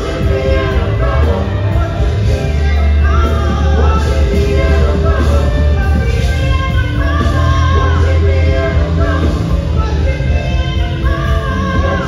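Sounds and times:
backing vocalists singing: 0.0 - 12.0
keyboard: 0.0 - 12.0
steady bass line: 0.0 - 12.0
woman singing lead: 0.0 - 12.0.

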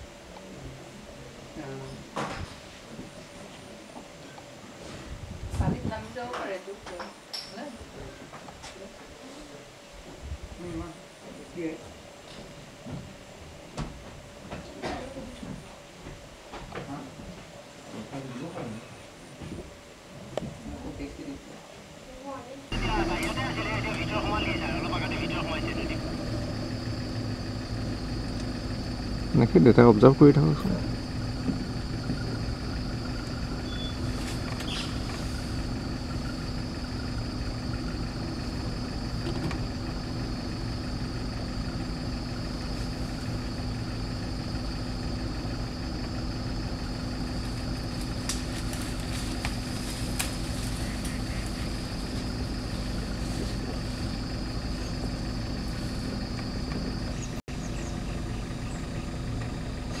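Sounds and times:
high whine: 22.7 - 60.0
vehicle engine idling: 22.7 - 60.0.

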